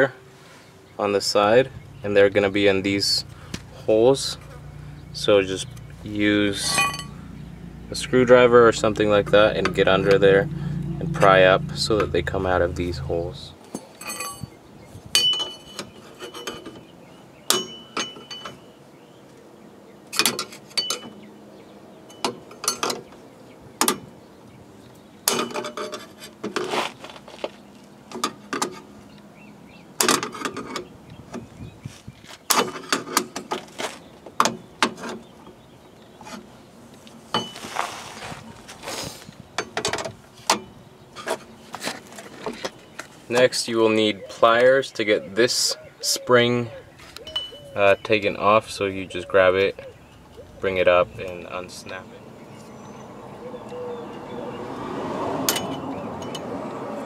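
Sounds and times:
tools scraping and clinking on metal: 6.5s - 7.2s, 13.6s - 14.6s, 15.2s - 16.9s, 17.5s - 18.7s, 20.1s - 21.2s, 25.2s - 27.0s.

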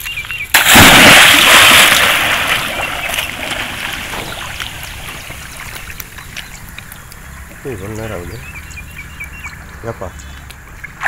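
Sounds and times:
water drips: 0.0s - 10.8s
water splashing in a well: 0.5s - 6.1s
water lapping: 0.8s - 6.8s.

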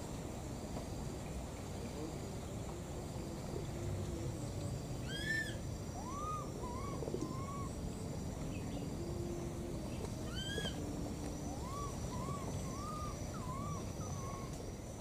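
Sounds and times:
baby monkey high call: 5.0s - 7.7s, 10.3s - 10.8s.

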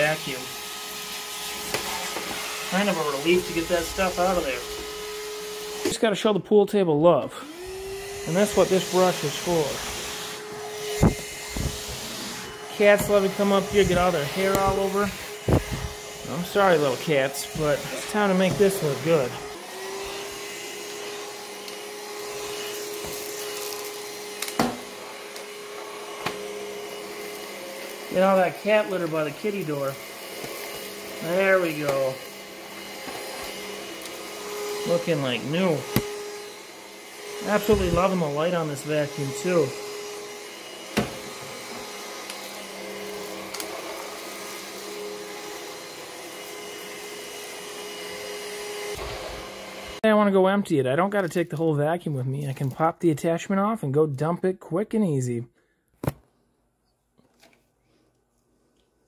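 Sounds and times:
stick vacuum running: 7.4s - 50.0s.

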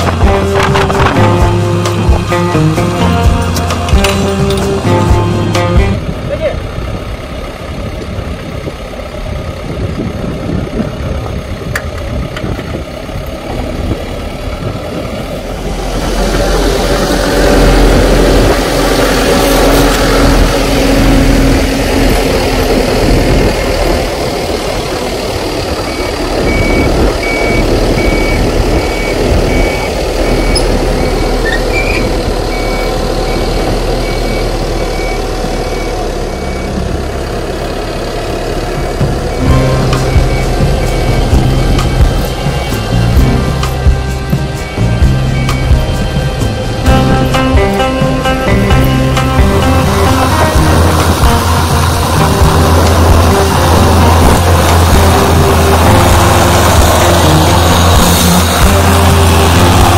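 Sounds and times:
diesel engine running: 0.0s - 59.9s
reversing alarm beeps: 25.8s - 36.8s, 39.3s - 43.2s, 44.6s - 46.0s.

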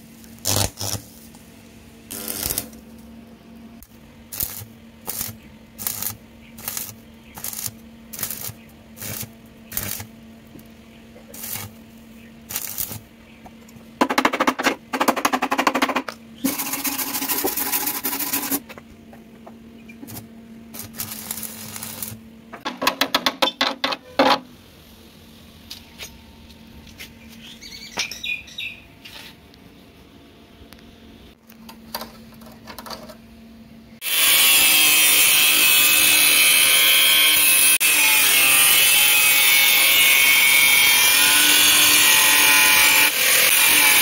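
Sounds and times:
arc welding crackle: 0.0s - 3.2s, 3.8s - 13.1s, 20.0s - 22.3s, 34.0s - 44.0s
steady low hum: 0.0s - 22.8s.

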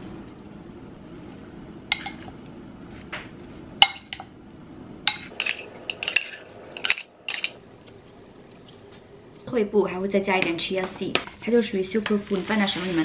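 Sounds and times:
metal spoon clinking on ceramic bowl: 1.9s - 2.3s, 5.1s - 7.6s.

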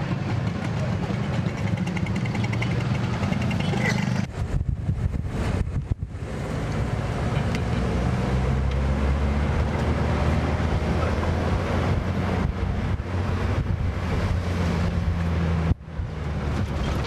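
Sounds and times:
vehicle engine and road noise: 0.0s - 17.0s
wind buffeting microphone: 4.2s - 7.0s, 11.3s - 17.0s.

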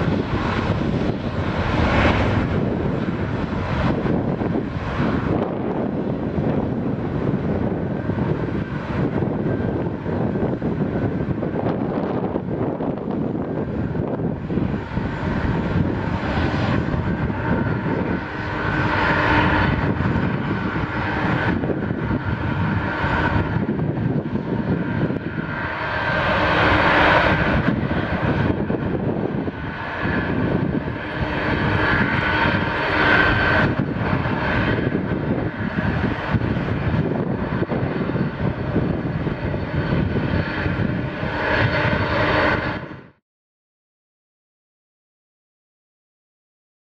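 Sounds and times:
jet engines roaring on takeoff: 0.0s - 43.2s.

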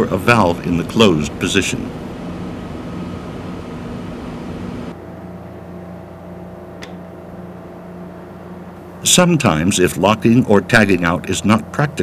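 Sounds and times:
machinery humming: 0.0s - 6.5s
sharp click: 6.8s - 7.0s.

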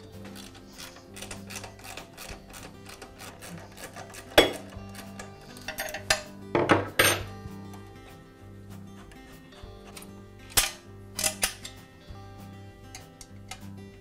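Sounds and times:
soft background music: 0.0s - 14.0s
wrench clacking on metal: 0.3s - 7.8s.

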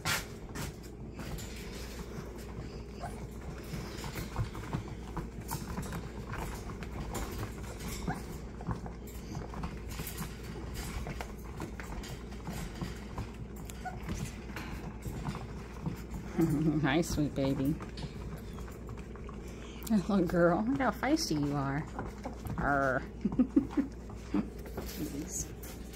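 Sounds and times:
puppies scuffling on pad: 0.0s - 25.9s
puppy noise: 2.4s - 4.8s, 11.9s - 15.4s, 21.9s - 24.9s.

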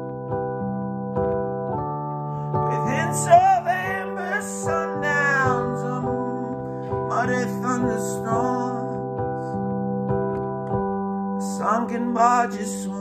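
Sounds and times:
piano chords: 0.0s - 13.0s
person singing slow melody: 2.4s - 9.8s, 11.4s - 13.0s.

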